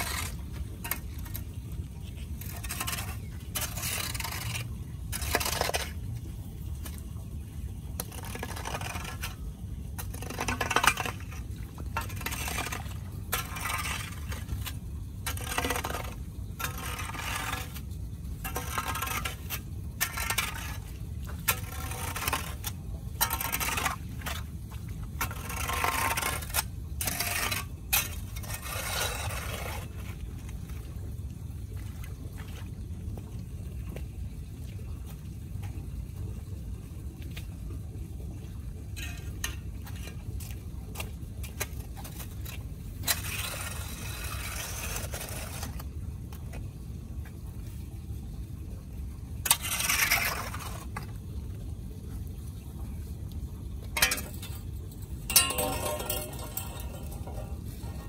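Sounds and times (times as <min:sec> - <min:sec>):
steady low rumble: 0:00.0 - 0:25.7, 0:26.3 - 0:58.0
broom and rake scraping wet concrete: 0:00.0 - 0:31.0, 0:38.9 - 0:46.7, 0:49.4 - 0:51.2, 0:53.8 - 0:58.0.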